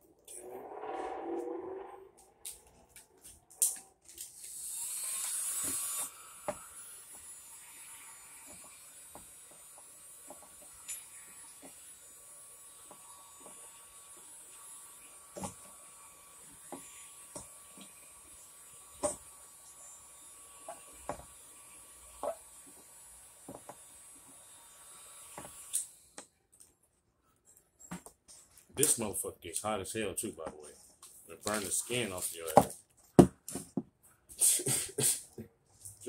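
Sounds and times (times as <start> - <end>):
heat gun blowing hiss: 4.4 - 9.6.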